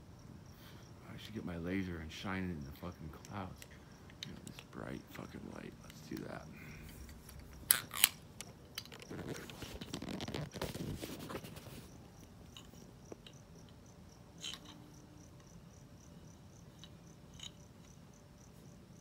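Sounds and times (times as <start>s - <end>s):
cricket chirping: 0.0s - 19.0s
rustling handling noise: 4.2s - 13.4s.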